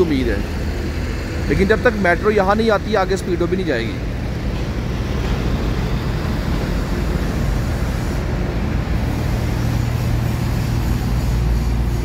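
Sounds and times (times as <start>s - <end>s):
engines and road traffic rumble: 0.0s - 12.0s.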